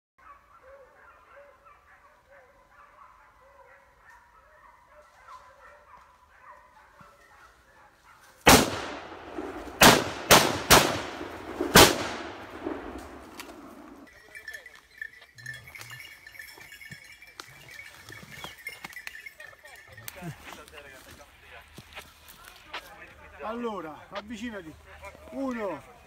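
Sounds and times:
hunting dogs baying: 0.2s - 10.3s, 12.4s - 22.0s
rifle gunshots: 8.4s - 14.0s.

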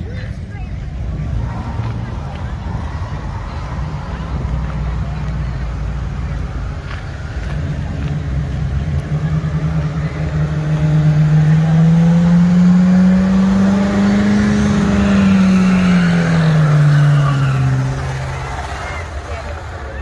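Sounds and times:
car engine revving hard: 7.4s - 19.4s.

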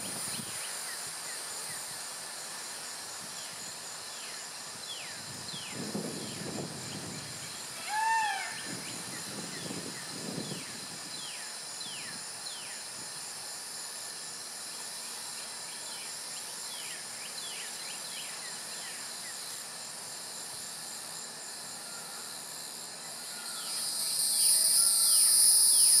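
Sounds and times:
insect chorus: 0.0s - 26.0s
bird call: 7.8s - 8.7s.

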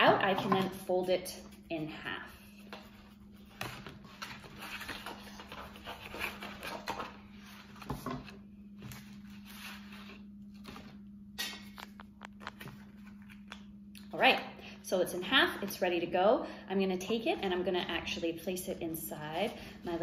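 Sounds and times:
cardboard rustling: 2.7s - 11.0s.

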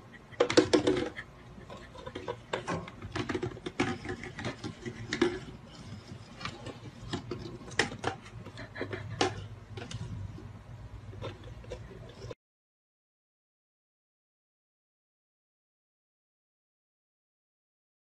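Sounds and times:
plastic bottle rattling on wooden floor: 2.2s - 5.6s.

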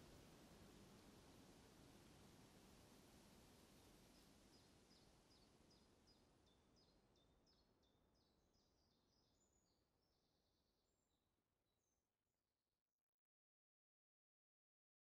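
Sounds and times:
faint background hiss: 0.0s - 9.6s.

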